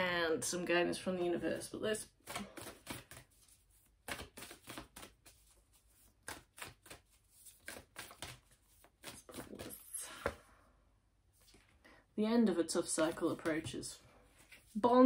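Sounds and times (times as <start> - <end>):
cards being shuffled: 1.6 - 10.4, 12.9 - 14.9.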